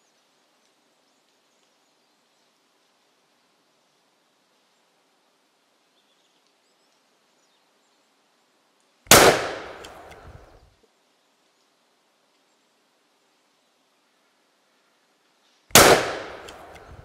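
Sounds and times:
shotgun shot: 9.1s - 10.2s, 15.7s - 16.9s.

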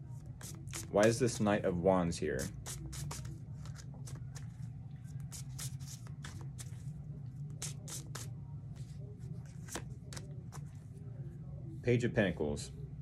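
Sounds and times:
steady low hum: 0.0s - 13.0s
cards being shuffled: 2.4s - 6.9s, 7.5s - 8.3s, 9.4s - 10.8s.

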